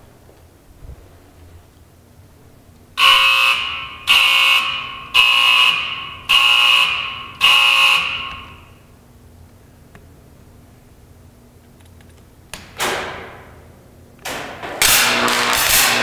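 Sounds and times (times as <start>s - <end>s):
high-voltage warning alarm: 3.0s - 8.9s.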